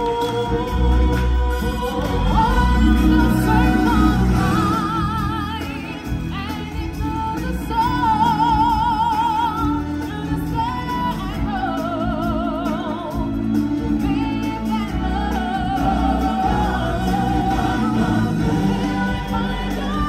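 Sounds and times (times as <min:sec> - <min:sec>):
person singing with vibrato: 0:00.0 - 0:20.0
stage show musical backing: 0:00.0 - 0:20.0.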